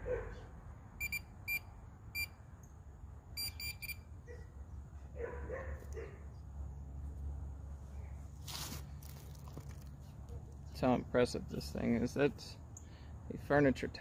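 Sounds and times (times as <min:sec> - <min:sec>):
metal detector high-pitched beeps: 0:01.0 - 0:02.4, 0:03.4 - 0:04.0.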